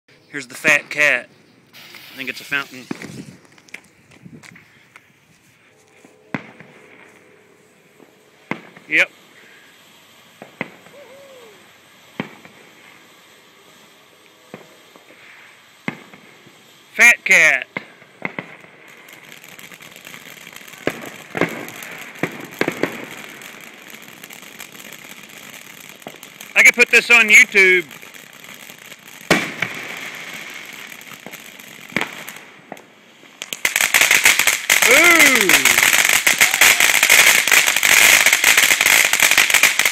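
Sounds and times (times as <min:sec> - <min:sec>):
fountain firework hissing: 0:00.4 - 0:05.8, 0:06.4 - 0:39.9
sharp firework cracks: 0:01.7 - 0:05.1, 0:06.3 - 0:07.2, 0:08.0 - 0:39.9
sharp pops: 0:01.7 - 0:05.1.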